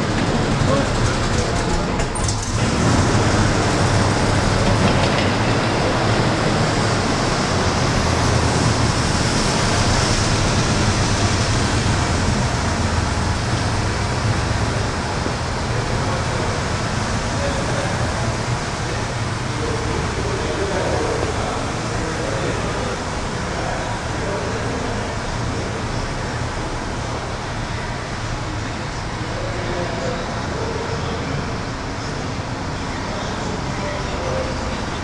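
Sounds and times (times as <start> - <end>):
tracks rattling: 0.0 - 24.1
engine low rumble: 0.0 - 35.0.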